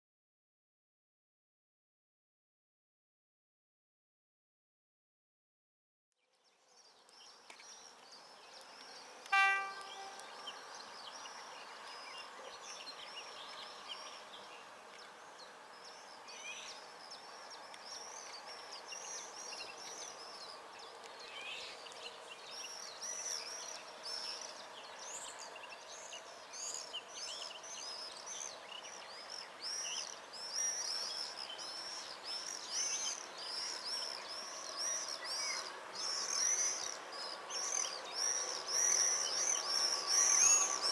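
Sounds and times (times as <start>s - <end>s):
birds chirping and singing: 7.2s - 14.7s
short horn blast: 9.4s - 10.2s.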